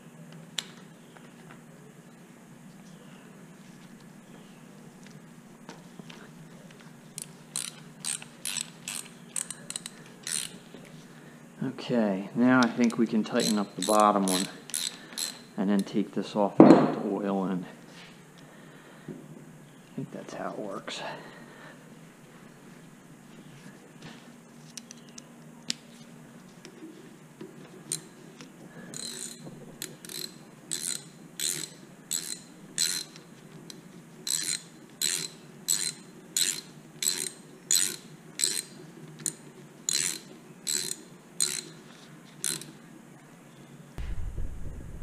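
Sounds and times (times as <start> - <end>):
socket ratchet clicking: 7.2 - 10.6, 12.9 - 15.5, 28.9 - 33.2, 34.3 - 41.8, 42.4 - 42.8.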